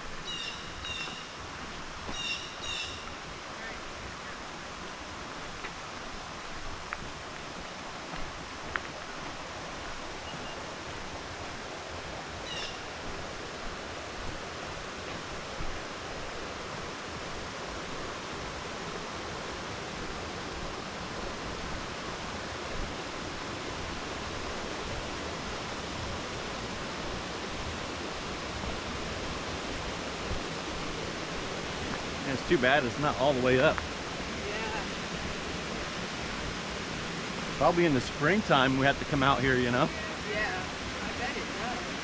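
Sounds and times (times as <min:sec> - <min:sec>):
creek rushing over rock: 0:00.0 - 0:42.0
bird chirp: 0:00.2 - 0:01.4, 0:02.1 - 0:03.2.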